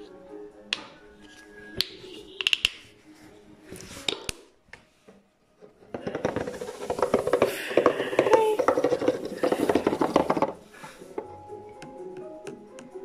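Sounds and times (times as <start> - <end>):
plastic bottles clicking on table: 1.8 - 2.8, 5.9 - 10.6
plastic bottles rubbing and clattering: 5.6 - 11.4.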